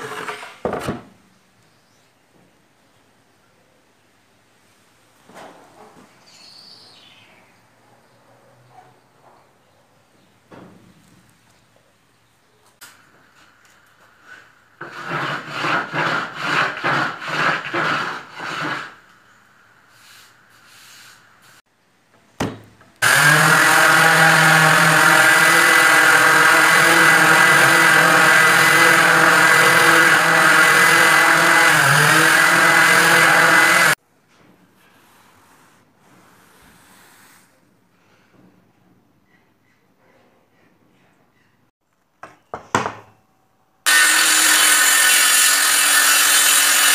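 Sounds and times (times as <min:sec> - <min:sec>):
orbital sander running on wood: 0:23.0 - 0:34.0, 0:43.9 - 0:46.9.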